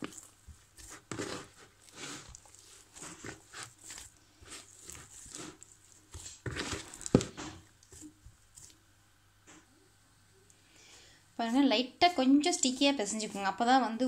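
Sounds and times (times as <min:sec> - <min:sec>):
hand kneading dough: 0:00.0 - 0:09.8, 0:11.4 - 0:14.0
dough thump: 0:06.1 - 0:08.4.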